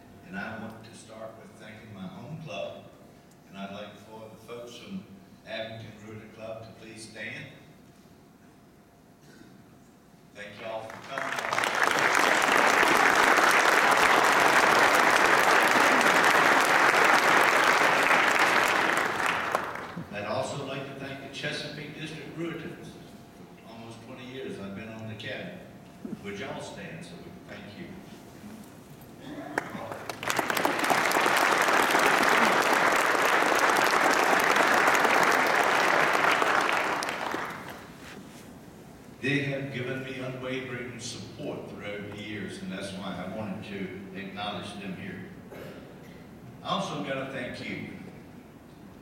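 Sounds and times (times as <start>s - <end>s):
audience applauding: 10.8s - 20.1s, 29.5s - 38.1s.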